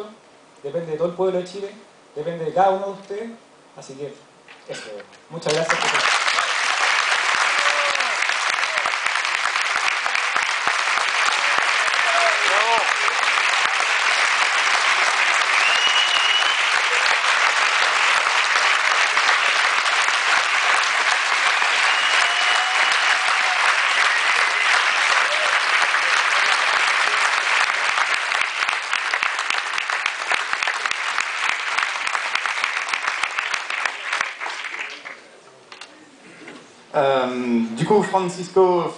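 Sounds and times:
audience applauding: 5.4s - 35.4s.

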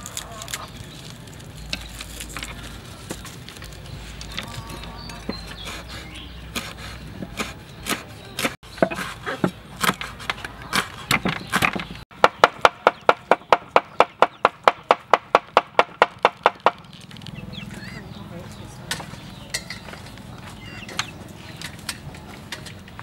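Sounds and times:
cleaver chopping on wooden board: 6.5s - 16.8s.

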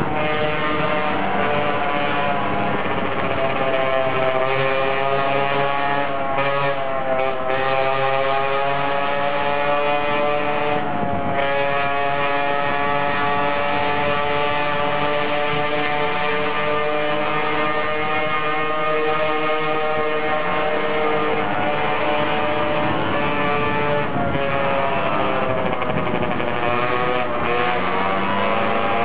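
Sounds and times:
scooter engine running: 0.0s - 6.2s, 12.8s - 29.0s.

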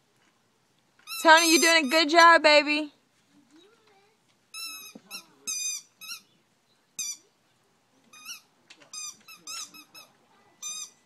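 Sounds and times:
high-pitched squeaks: 1.0s - 2.2s, 8.2s - 11.0s.

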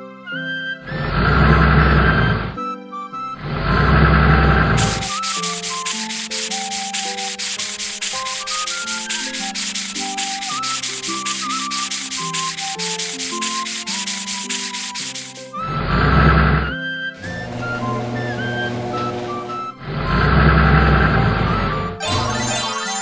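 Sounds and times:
light background melody: 0.0s - 23.0s
brush scrubbing a truck: 4.8s - 15.5s.

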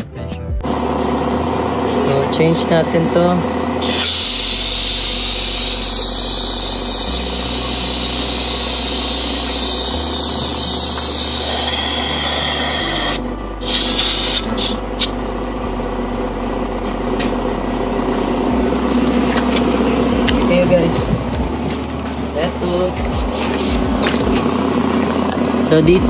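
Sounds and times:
compressed air hissing: 3.8s - 15.1s, 23.2s - 23.9s
short air bursts: 3.8s - 15.1s, 23.3s - 23.8s.

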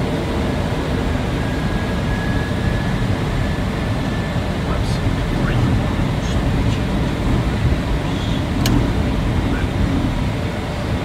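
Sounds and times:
engine hum: 0.0s - 11.0s
airflow rushing over cockpit: 3.7s - 11.0s.

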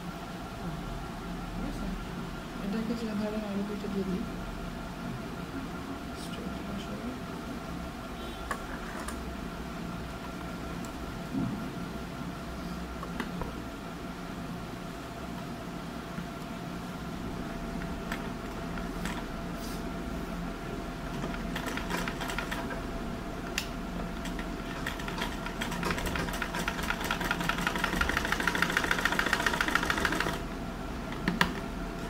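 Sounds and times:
sewing machine clicks: 24.3s - 30.4s
sewing machine stitching: 24.3s - 30.4s.

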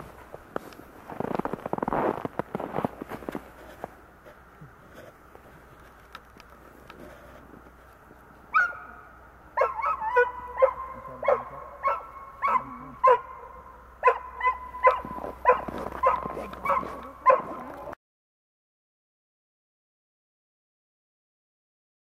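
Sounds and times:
dog barking: 8.5s - 18.0s.

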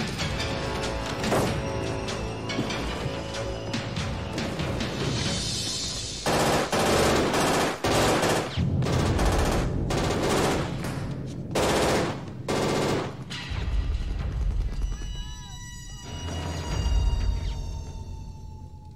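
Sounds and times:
automatic gunfire: 6.2s - 11.0s, 11.6s - 13.3s.

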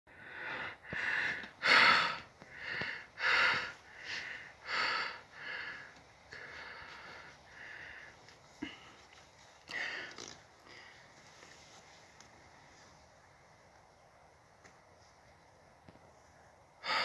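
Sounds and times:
person breathing and sniffing: 0.2s - 12.8s.

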